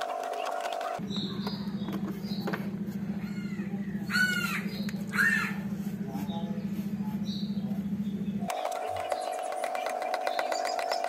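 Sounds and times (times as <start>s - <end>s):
steady low hum: 0.0s - 11.0s
crow cawing: 3.2s - 5.6s.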